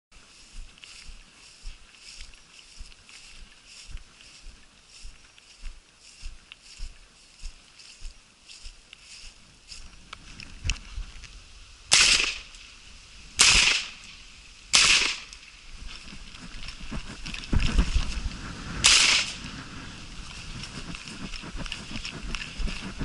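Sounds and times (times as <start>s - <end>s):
shotgun shots with echo: 11.9s - 12.5s, 13.4s - 14.0s, 14.7s - 15.3s, 18.8s - 19.4s
low rumbling on microphone: 15.7s - 23.0s.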